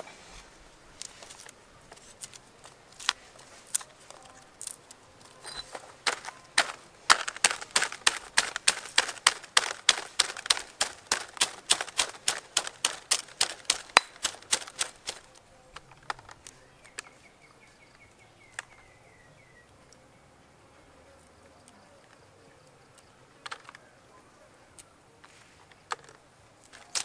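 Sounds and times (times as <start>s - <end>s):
pestle pounding in stone mortar: 5.5s - 15.2s.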